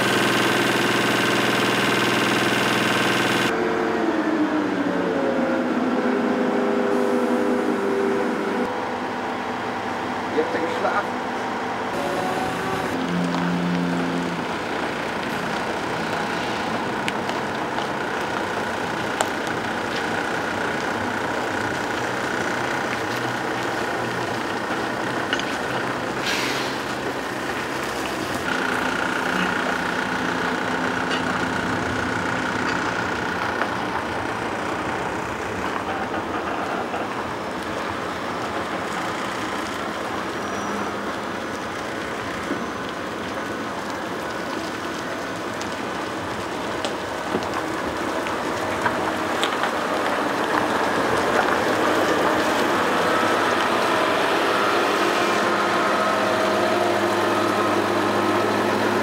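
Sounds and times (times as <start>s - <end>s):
heavy truck engine running: 0.0s - 59.0s
trailer tyres rolling: 12.0s - 59.0s
brief hiss: 26.2s - 26.8s.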